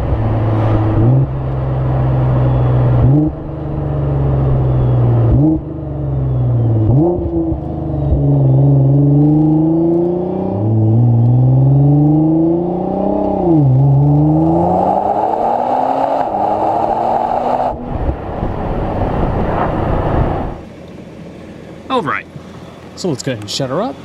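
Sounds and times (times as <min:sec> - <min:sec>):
steady rushing noise: 0:00.0 - 0:02.4, 0:16.1 - 0:20.7
car exhaust accelerating: 0:00.0 - 0:20.7.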